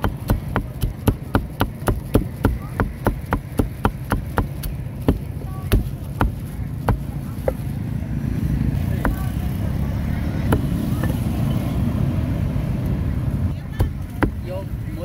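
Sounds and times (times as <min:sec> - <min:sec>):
knife chopping on wooden block: 0:00.0 - 0:07.6, 0:09.0 - 0:09.3, 0:10.5 - 0:11.2.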